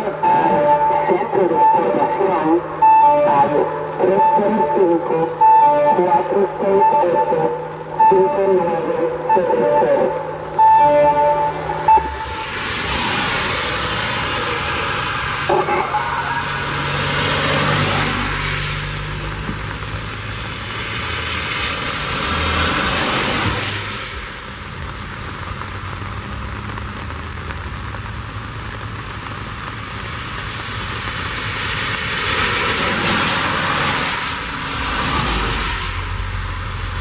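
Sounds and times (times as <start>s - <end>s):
car tyres hissing on wet road: 11.2s - 37.0s.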